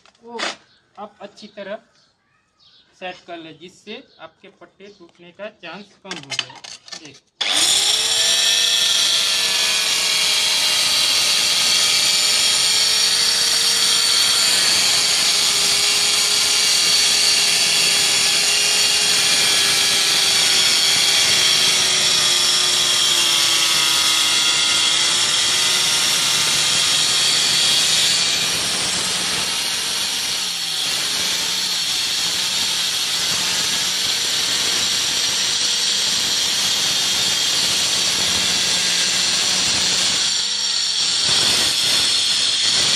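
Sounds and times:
electric tile cutter grinding tile: 6.2 - 42.9.

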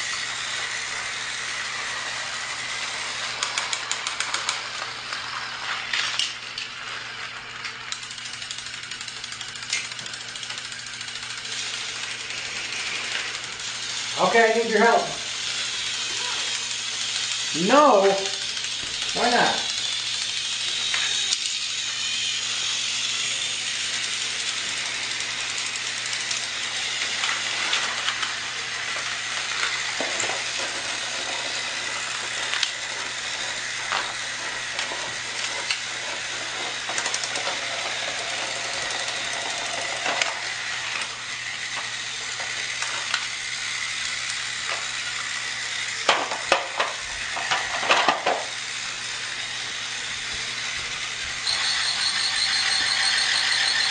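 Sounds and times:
toy trains whirring: 0.0 - 53.9
clicks and clatters: 3.3 - 5.2, 5.8 - 6.7, 7.6 - 11.3, 26.2 - 32.8, 33.9 - 37.6, 38.9 - 43.3, 46.0 - 48.5.

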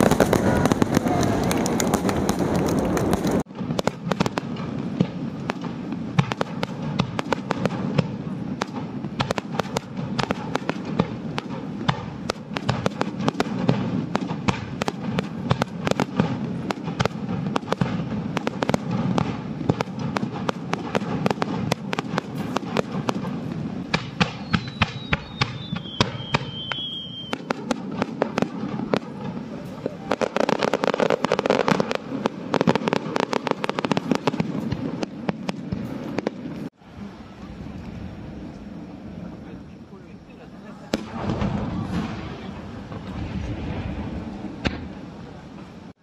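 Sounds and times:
fireworks bangs: 0.0 - 46.0
falling whistle: 24.4 - 27.4.

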